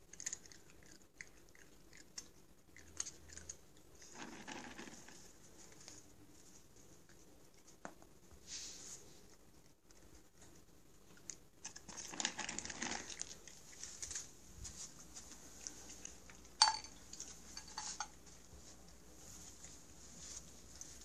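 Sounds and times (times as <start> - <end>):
rustling and crinkling: 3.0 - 21.0
metallic clink of steel bowl: 16.6 - 17.0.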